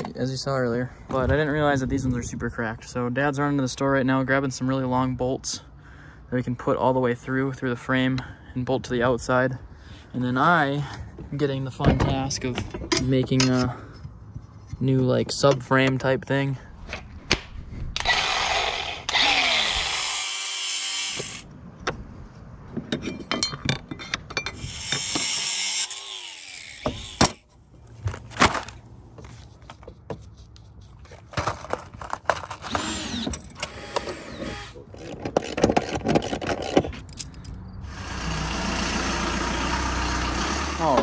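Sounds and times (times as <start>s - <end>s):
angle grinder: 18.0s - 21.4s, 24.6s - 27.4s, 37.8s - 41.0s
power tools running: 18.0s - 21.4s, 24.6s - 27.4s, 32.7s - 35.5s, 37.8s - 41.0s
clicks and knocks of hardware: 22.7s - 24.6s.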